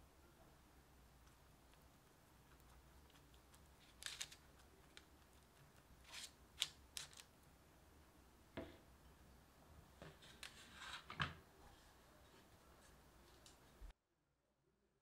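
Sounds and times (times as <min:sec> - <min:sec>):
papery rustle: 0:03.8 - 0:05.0.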